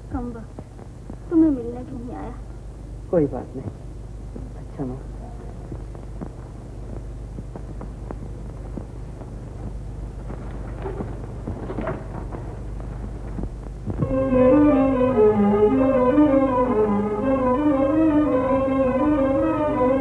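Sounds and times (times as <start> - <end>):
low film soundtrack hum: 0.0 - 20.0
faint crackles: 0.1 - 14.1
string melody background music: 14.0 - 20.0.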